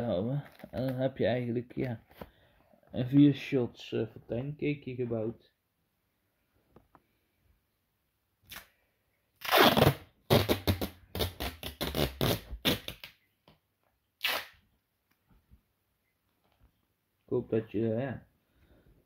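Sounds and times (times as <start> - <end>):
tape ripped off roll: 9.4 - 13.2, 14.2 - 14.6.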